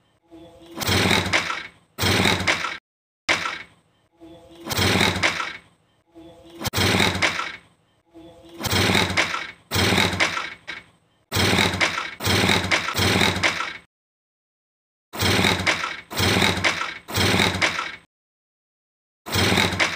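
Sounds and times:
motorcycle engine turning over: 0:00.7 - 0:03.6, 0:04.6 - 0:05.6, 0:06.6 - 0:07.6, 0:08.6 - 0:13.8, 0:15.2 - 0:18.0, 0:19.3 - 0:19.9.

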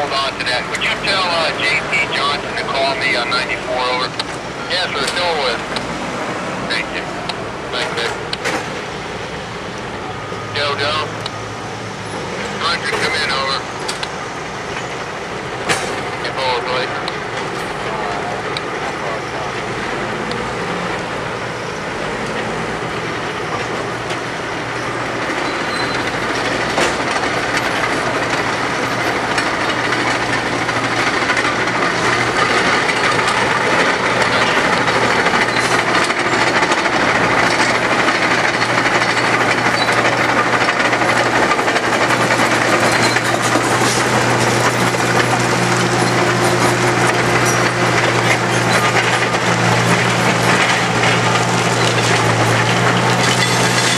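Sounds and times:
diesel machinery engine hum: 0:00.0 - 0:53.9
metallic clanks and knocks: 0:25.2 - 0:53.9.

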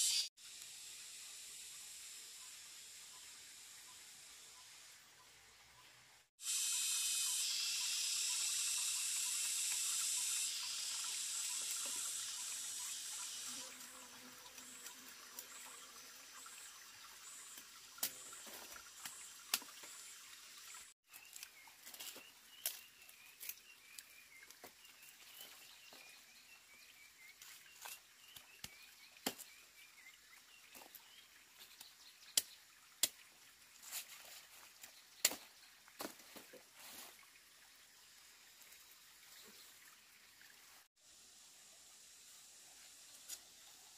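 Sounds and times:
loud high-pitched hiss: 0:00.0 - 0:02.9, 0:06.4 - 0:13.5.

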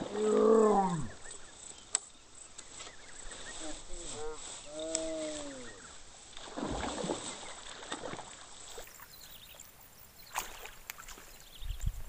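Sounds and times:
fish thrashing and splashing: 0:06.4 - 0:09.0.

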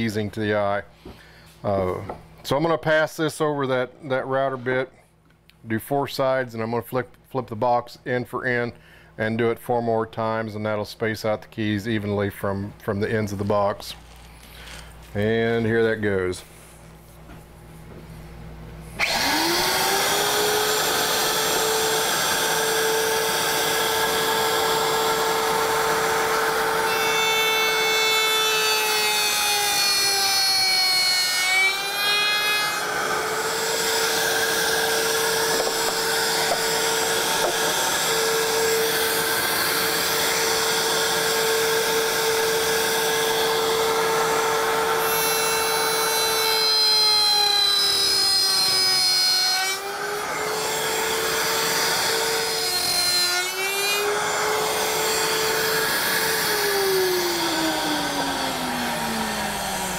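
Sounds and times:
router bit cutting wood: 0:19.0 - 0:59.9
router motor high whine: 0:19.0 - 0:59.9.

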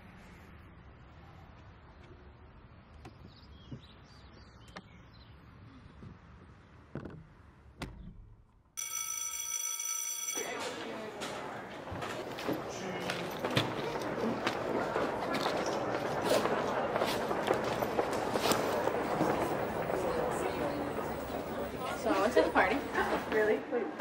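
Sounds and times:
faint outdoor ambience: 0:00.0 - 0:08.8, 0:10.2 - 0:24.0
electronic school bell ringing: 0:08.8 - 0:11.0
students chatting: 0:10.3 - 0:24.0
soft footsteps: 0:10.5 - 0:23.6.

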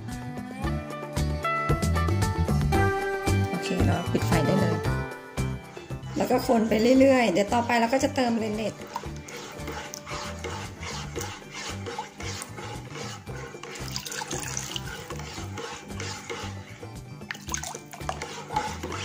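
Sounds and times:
background music with steady beat: 0:00.0 - 0:19.0
utensil stirring milk in pot: 0:05.7 - 0:19.0.

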